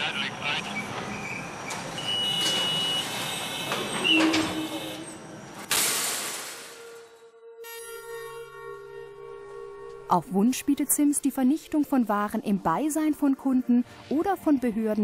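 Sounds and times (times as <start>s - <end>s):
background music: 6.8s - 15.0s.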